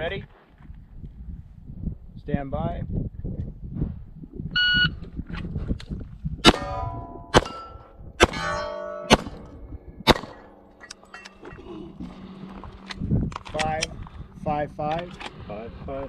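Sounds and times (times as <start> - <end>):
pistol shots: 6.4 - 10.6
steel targets ringing: 6.5 - 11.6.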